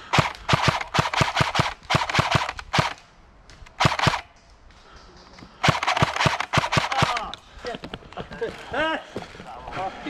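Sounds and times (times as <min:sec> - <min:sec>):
airsoft gun shots: 0:00.0 - 0:03.0, 0:03.8 - 0:04.4, 0:05.6 - 0:07.3.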